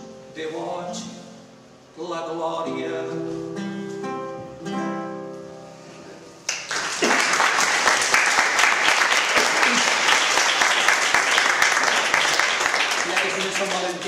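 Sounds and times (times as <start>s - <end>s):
classical guitar chord ringing: 2.6s - 6.5s
audience applause: 6.5s - 14.0s.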